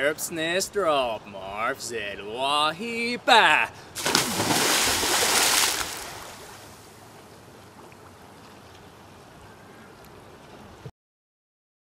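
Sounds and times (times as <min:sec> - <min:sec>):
pool water sloshing: 0:04.0 - 0:08.8.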